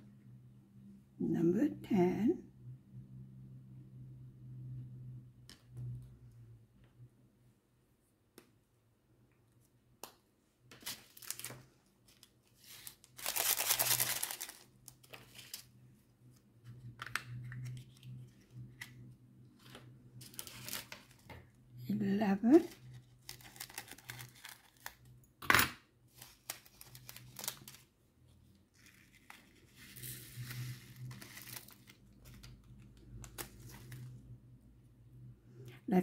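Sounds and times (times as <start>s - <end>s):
beads poured into plastic container: 12.7s - 14.7s.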